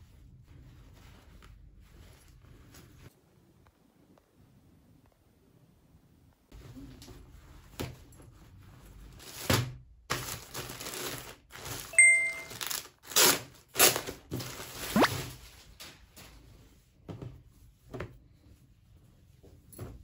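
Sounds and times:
short ding: 0:12.0 - 0:12.6.

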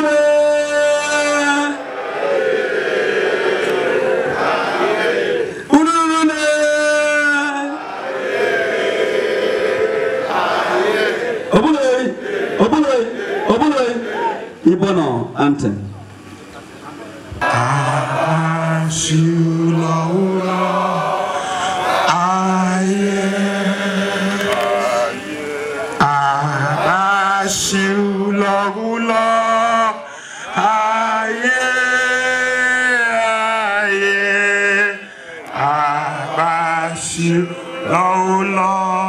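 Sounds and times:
group of men singing: 0:07.5 - 0:14.6, 0:17.4 - 0:39.0.

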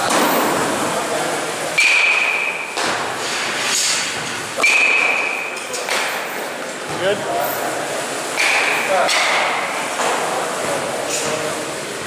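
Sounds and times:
metal bat hitting ball: 0:01.8 - 0:03.0, 0:04.6 - 0:06.1.

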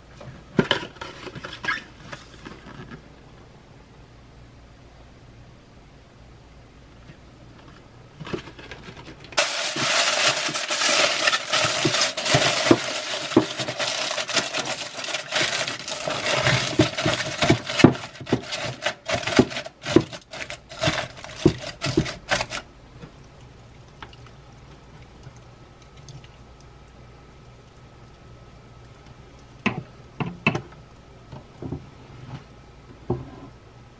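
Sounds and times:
foil crinkling: 0:08.2 - 0:22.7.

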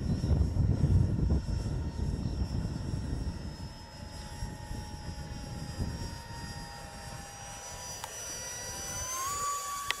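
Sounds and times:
wind buffeting microphone: 0:00.0 - 0:07.6
electric fan whine: 0:00.0 - 0:10.0.

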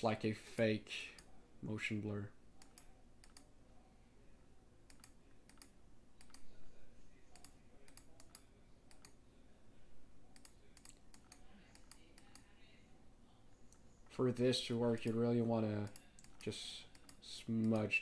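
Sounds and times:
mouse and keyboard clicking: 0:04.9 - 0:06.4, 0:10.3 - 0:12.5, 0:15.8 - 0:17.9.

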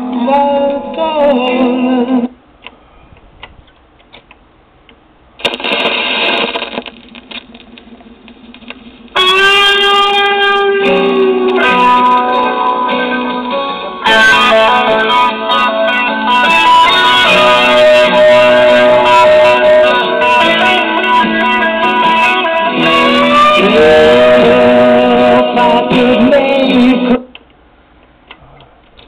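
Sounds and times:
low hiss: 0:00.0 - 0:29.0
music from record player: 0:05.4 - 0:27.3
song with guitar: 0:08.5 - 0:27.2.

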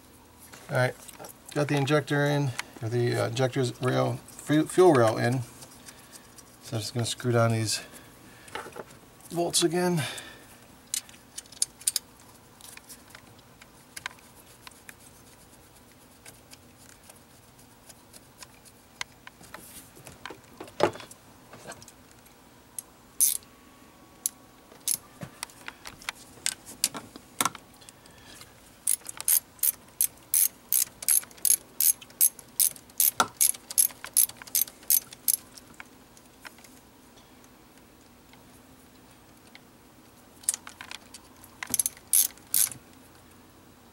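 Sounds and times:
ratchet wrench clicking: 0:23.2 - 0:23.4, 0:28.8 - 0:35.4, 0:41.7 - 0:42.8.

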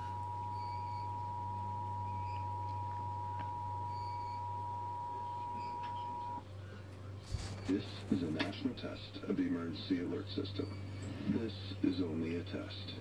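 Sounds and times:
two-tone alert signal: 0:00.0 - 0:06.4
faint low hum: 0:00.0 - 0:13.0.

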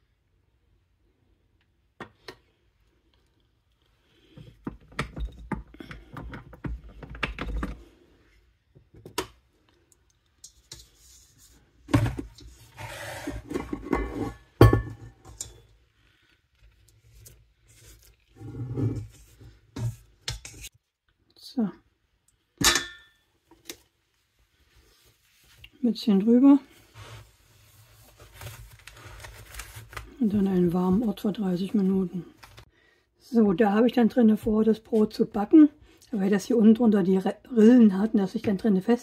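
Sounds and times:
metal bowl clanking: 0:13.6 - 0:15.6, 0:22.6 - 0:23.2.

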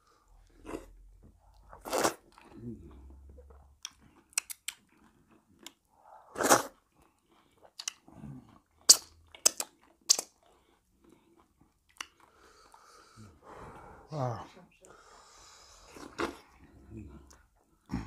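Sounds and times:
chewing food close-up: 0:00.4 - 0:12.9.

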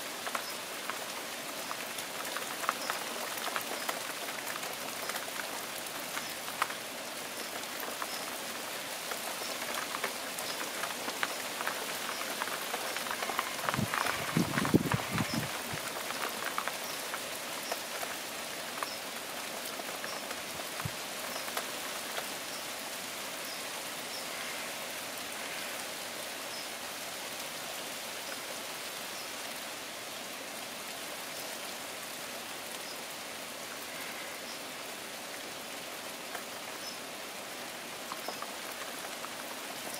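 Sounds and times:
rain falling on foliage: 0:00.0 - 0:39.9.

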